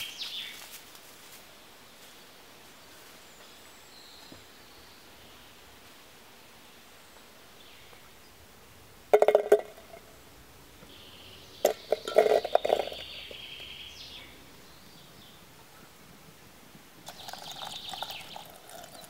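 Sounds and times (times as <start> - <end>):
strawberries clinking in metal kettle: 11.7 - 13.1, 17.1 - 19.0.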